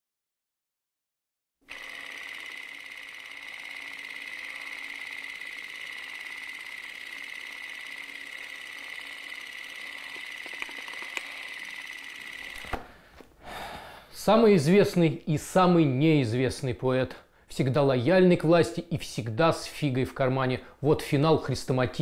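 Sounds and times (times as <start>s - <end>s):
film projector whirring: 1.7s - 13.0s
sharp clicks: 10.1s - 11.4s.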